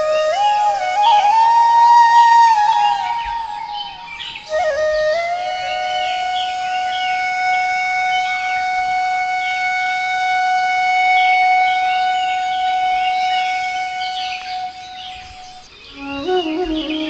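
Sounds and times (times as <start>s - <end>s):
birds chirping: 0.0s - 9.7s, 11.0s - 17.0s
long wind instrument note: 4.6s - 17.0s.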